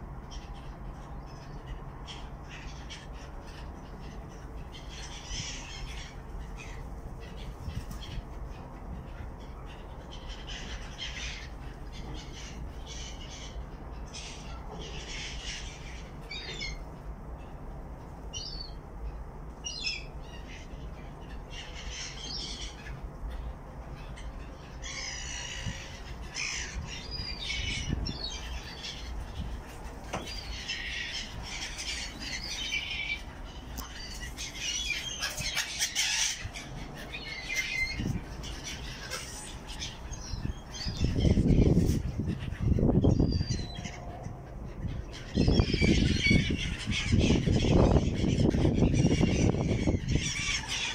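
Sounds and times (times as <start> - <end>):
gulls squawking: 30.2 - 50.9.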